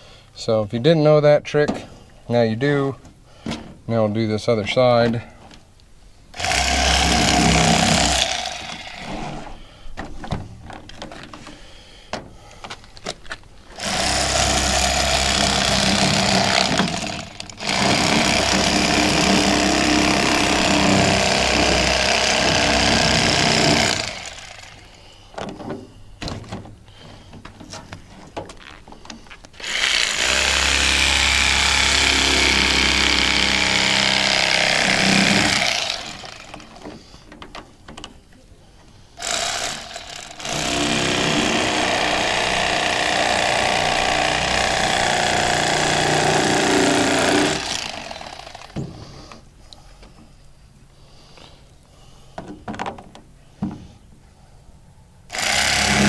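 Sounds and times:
handling clicks and knocks: 10.0 - 13.5, 25.3 - 29.6, 36.5 - 38.3
electric fillet knife buzzing: 29.6 - 36.5.

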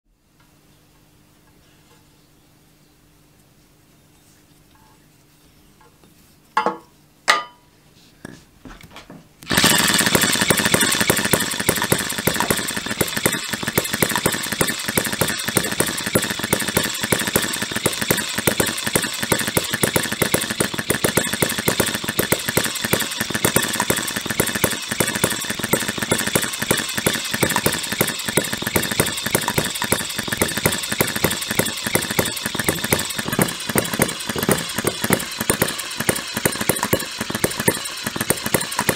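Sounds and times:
model engine firing pops: 9.4 - 38.9.

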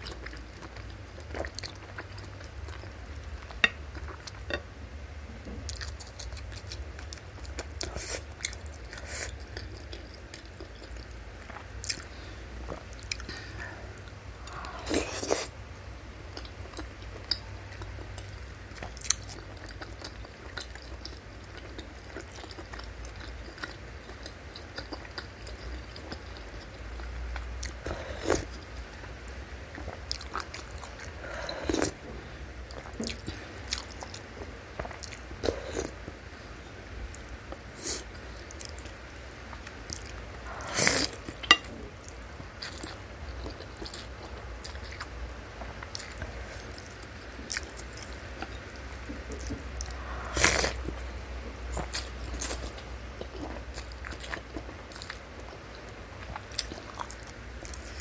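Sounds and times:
wet chewing: 37.1 - 58.0.

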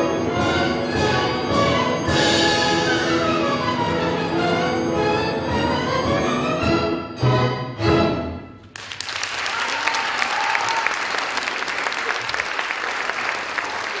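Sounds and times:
audience applause: 8.7 - 14.0.

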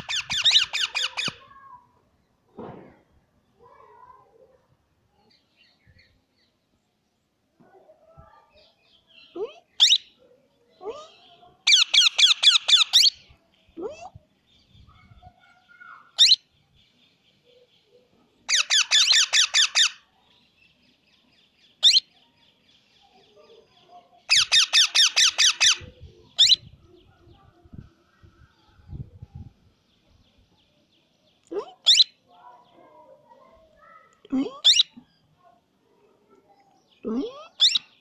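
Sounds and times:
parakeet rapid chattering: 0.0 - 1.4, 11.7 - 13.2, 18.5 - 20.0, 24.3 - 26.6, 34.6 - 35.0, 37.3 - 38.0
parakeet squeaky calls: 0.0 - 1.4, 9.8 - 10.2, 11.7 - 13.3, 16.2 - 16.4, 18.5 - 20.0, 21.8 - 22.1, 24.3 - 26.7, 31.8 - 32.2, 34.4 - 35.0, 37.3 - 38.0.

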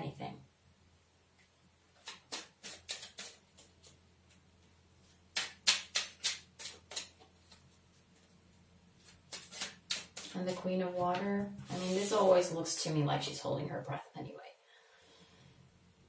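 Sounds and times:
cards clicking and tapping: 2.0 - 4.4, 9.0 - 10.3.

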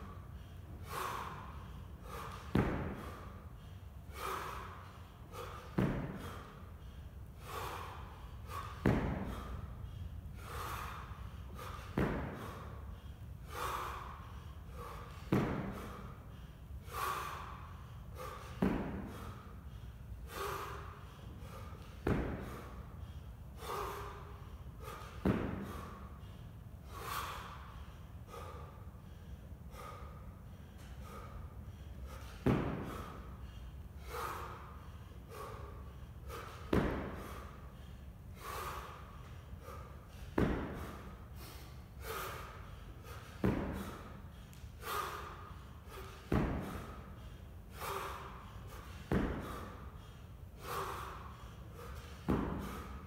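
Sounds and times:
man breathing heavily: 0.0 - 53.0
kettlebell thud: 2.3 - 3.2, 5.7 - 6.4, 8.5 - 9.5, 11.6 - 12.6, 14.8 - 16.0, 18.5 - 19.3, 22.0 - 22.6, 25.1 - 25.9, 32.4 - 33.1, 36.6 - 37.3, 40.3 - 40.9, 43.3 - 44.0, 46.1 - 47.0, 49.1 - 49.7, 52.2 - 52.8.

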